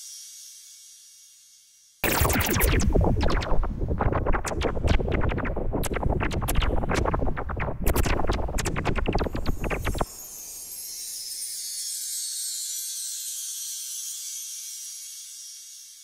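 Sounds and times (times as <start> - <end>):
low rumble: 2.0 - 10.0
sharp clicks and cracks: 2.0 - 10.0.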